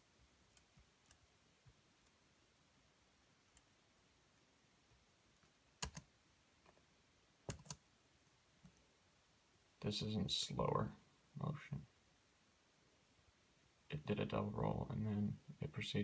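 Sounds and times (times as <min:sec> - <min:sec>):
laptop clicks: 0:07.5 - 0:07.8.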